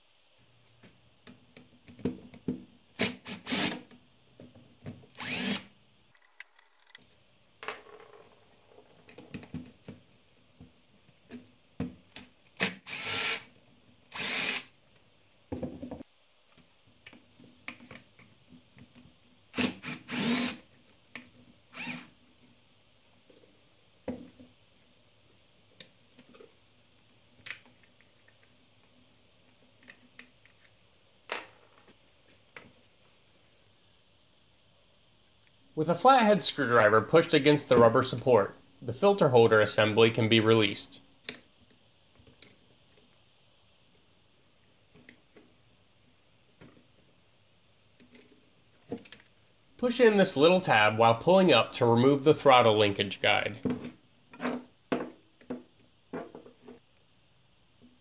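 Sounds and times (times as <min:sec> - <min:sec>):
power driver spinning: 0:05.2 - 0:06.9.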